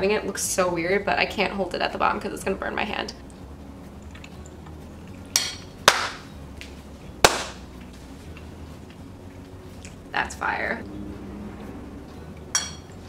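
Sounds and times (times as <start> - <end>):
sharp hand claps: 5.9 - 6.2, 7.2 - 7.6.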